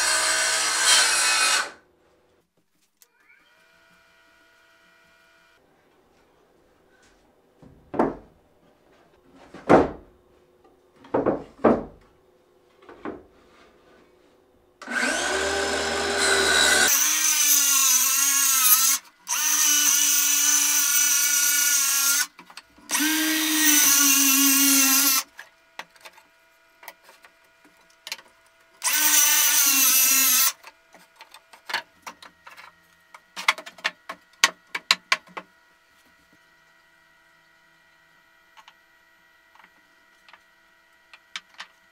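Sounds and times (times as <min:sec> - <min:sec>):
circular saw cutting plywood: 0:00.0 - 0:01.8, 0:14.8 - 0:25.3, 0:28.8 - 0:30.6
hollow wooden knocks: 0:07.6 - 0:08.3, 0:11.0 - 0:12.0.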